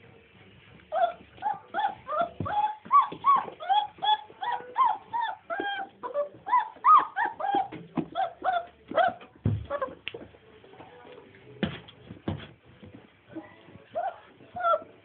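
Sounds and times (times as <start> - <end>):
puppy whining and yelping: 0.9 - 10.0, 13.9 - 15.0.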